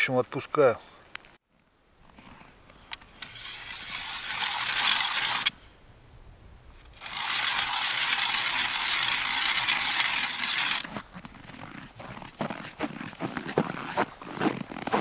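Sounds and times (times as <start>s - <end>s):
hand ice auger drilling ice: 3.2s - 5.5s, 6.9s - 15.0s.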